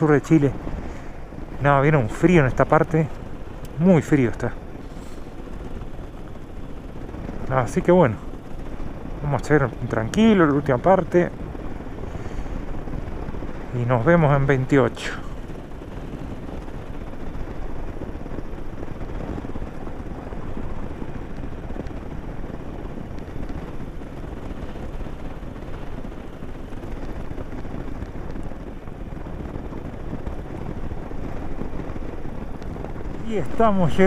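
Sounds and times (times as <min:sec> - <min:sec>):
motorcycle engine running: 0:00.0 - 0:14.4
road noise on gravel: 0:00.0 - 0:16.8, 0:19.8 - 0:34.0
wind rushing: 0:00.0 - 0:34.0.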